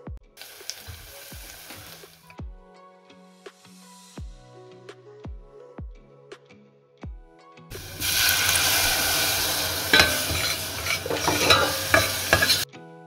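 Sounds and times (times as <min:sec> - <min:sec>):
food sizzling in hot oil: 0:00.4 - 0:02.3, 0:07.7 - 0:12.7
metal spoon stirring in pot: 0:07.7 - 0:12.7.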